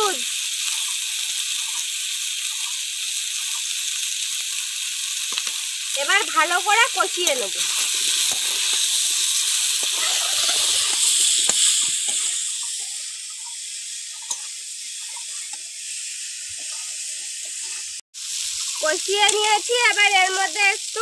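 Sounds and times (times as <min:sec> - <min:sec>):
food sizzling in hot oil: 0:00.0 - 0:21.0.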